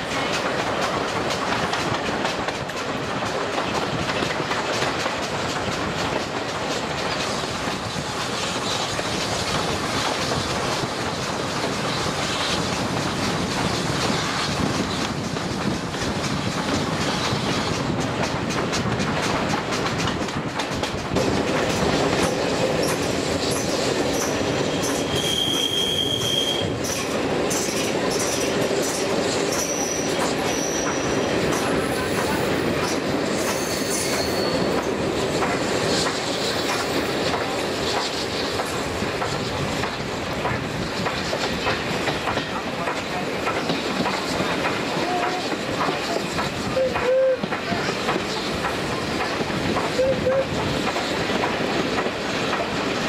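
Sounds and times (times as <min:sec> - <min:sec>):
train wheels rumbling on rails: 0:00.0 - 0:53.0
high wheel squeal: 0:22.8 - 0:27.1, 0:29.5 - 0:32.1, 0:33.4 - 0:34.8.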